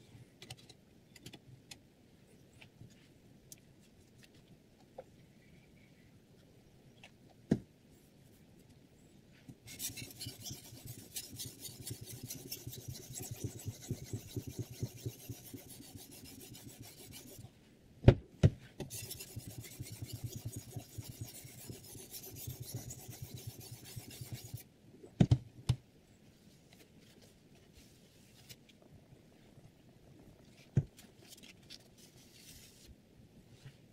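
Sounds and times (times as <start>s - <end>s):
sharpening stone scraping knife: 9.7s - 17.4s.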